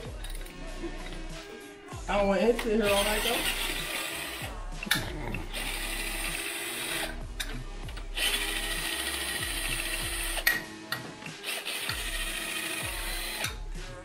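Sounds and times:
impact wrench hammering: 2.6s - 11.1s.

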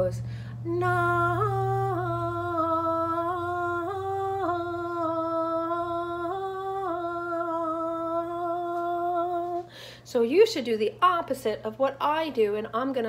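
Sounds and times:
woman singing a sustained vowel: 0.0s - 9.8s.

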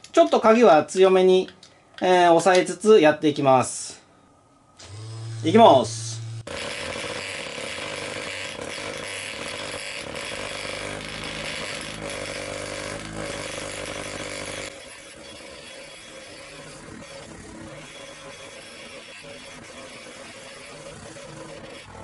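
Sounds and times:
electric massager buzzing: 4.8s - 22.0s.

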